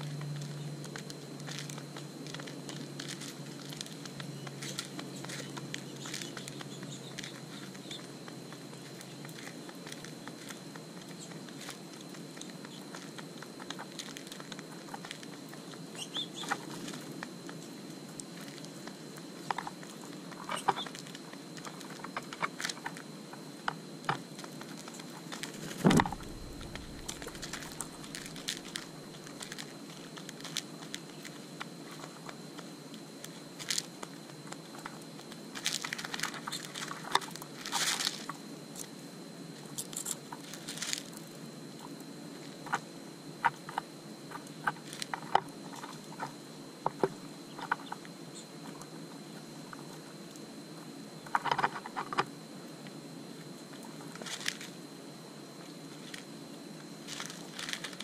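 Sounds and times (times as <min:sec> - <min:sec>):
doves pecking seed from plastic dish: 0:00.0 - 0:58.0
low hum: 0:25.4 - 0:30.3.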